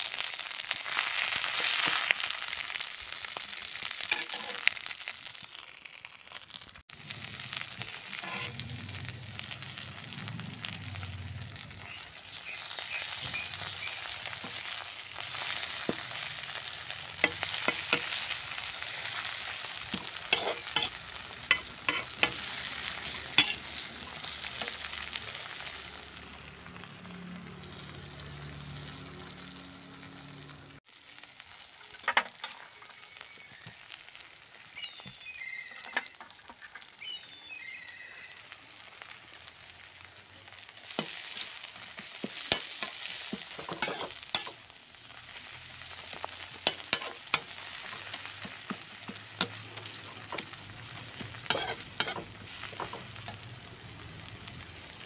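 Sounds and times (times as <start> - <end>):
leaves sizzling in a wok: 0.0 - 55.0
metal spoon scraping a pan: 4.0 - 4.8, 7.8 - 8.7, 12.8 - 25.1, 40.9 - 44.6, 46.2 - 53.4.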